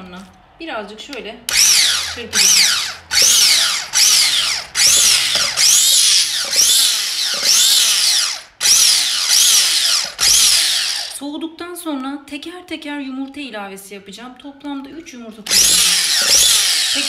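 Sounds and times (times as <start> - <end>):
electric hand mixer whining: 1.5 - 11.2, 15.5 - 17.0.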